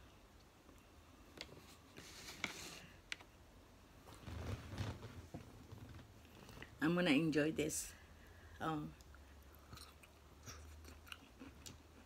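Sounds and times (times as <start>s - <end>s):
soft rustle: 1.3s - 3.1s, 4.0s - 6.8s.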